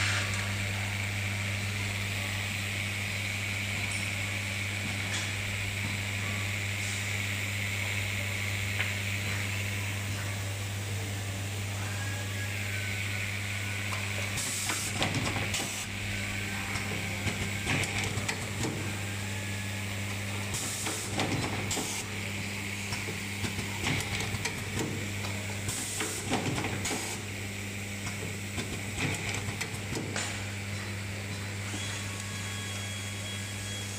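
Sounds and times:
soldering machine humming: 0.3s - 33.9s
pneumatic air hiss: 14.4s - 15.9s, 20.5s - 22.1s, 25.7s - 27.2s.

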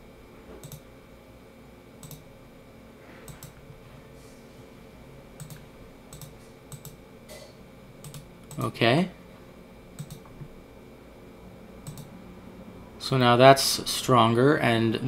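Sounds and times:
low background hum: 0.0s - 15.0s
computer mouse clicks: 0.6s - 0.8s, 2.0s - 2.2s, 3.3s - 3.6s, 5.4s - 7.0s, 8.0s - 8.6s, 10.0s - 10.4s, 11.8s - 12.1s.

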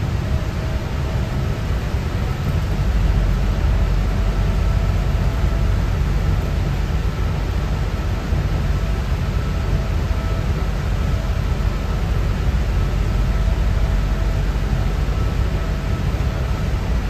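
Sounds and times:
engine and tyre rumble: 0.0s - 17.0s.

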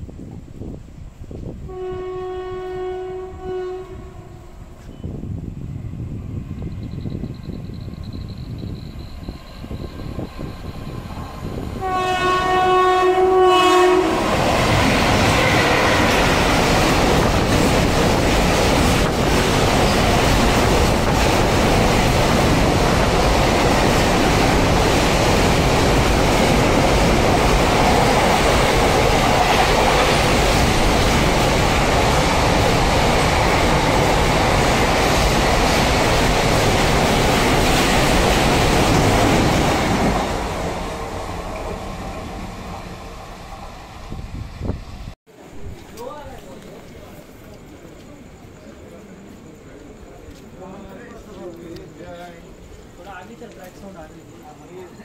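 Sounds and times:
locomotive horn blast: 1.7s - 4.7s, 11.8s - 16.2s
train wagons rumbling: 4.6s - 54.5s.

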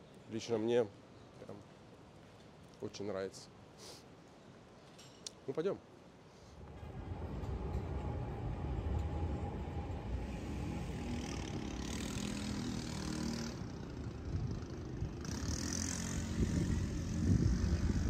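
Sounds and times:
hiss: 3.8s - 4.1s
road traffic rumble: 6.5s - 18.0s
tram passing: 6.6s - 18.0s.

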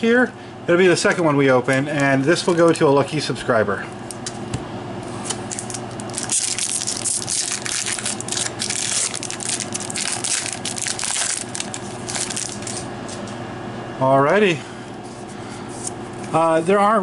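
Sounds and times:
foil wrapper crinkling and tearing: 5.3s - 12.9s.

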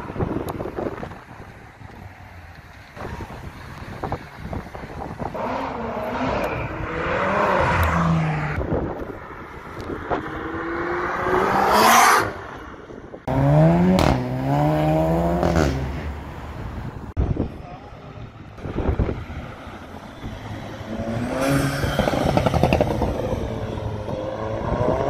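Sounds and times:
car engines accelerating past: 5.3s - 8.7s
engine revving up: 13.3s - 16.0s.

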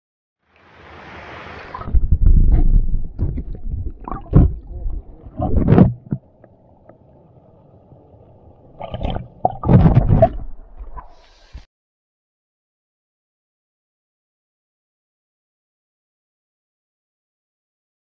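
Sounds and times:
underwater stream sloshing: 0.5s - 11.6s.

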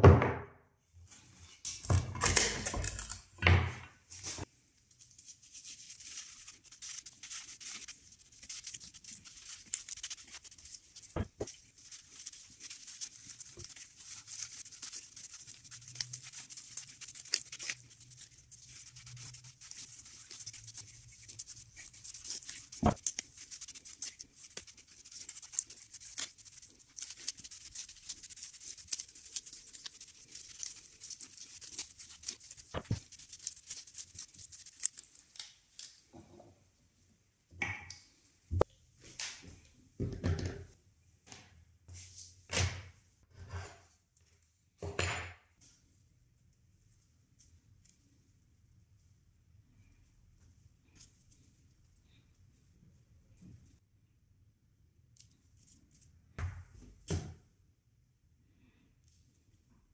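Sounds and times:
sponge scrubbing wood: 5.3s - 35.0s.

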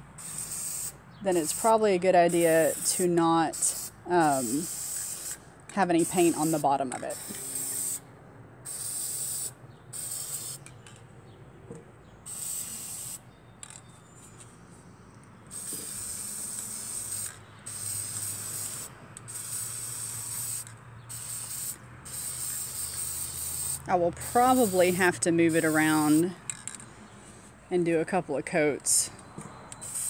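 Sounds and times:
spray-paint can hissing: 0.2s - 8.0s, 8.7s - 10.6s, 12.3s - 13.2s, 15.5s - 26.3s, 29.8s - 30.0s.

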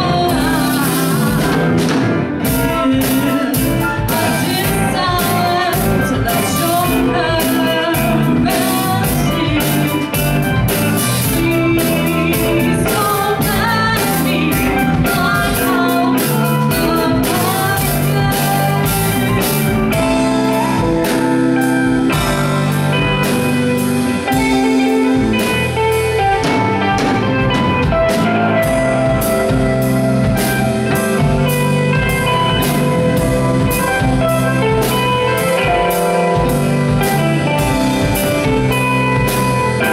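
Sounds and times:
woman singing: 0.0s - 20.8s
live rock band playing: 0.0s - 39.9s.

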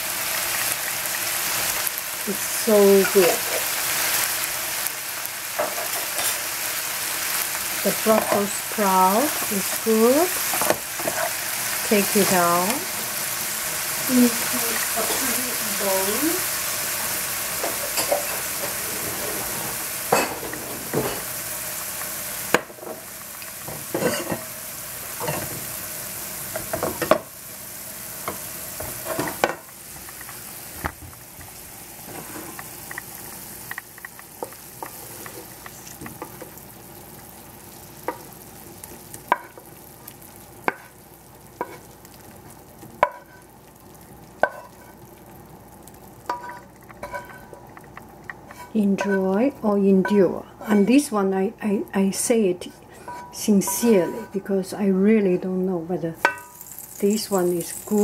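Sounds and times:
vegetables sizzling in pan: 0.0s - 58.0s
wooden spatula scraping pan: 17.7s - 21.2s, 32.1s - 32.7s, 48.5s - 49.3s, 50.0s - 51.1s, 53.0s - 54.4s.

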